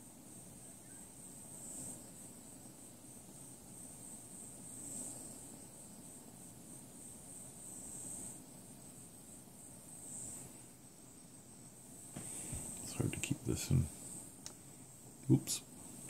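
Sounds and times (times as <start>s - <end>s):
torch flame hissing: 11.8s - 16.0s.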